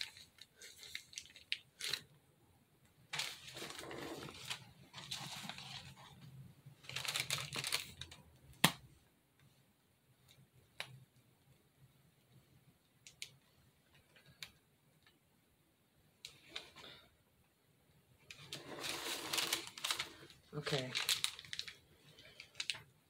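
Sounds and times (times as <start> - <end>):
plastic piping bag crinkling: 0.0 - 2.2, 3.1 - 8.7, 18.3 - 23.0.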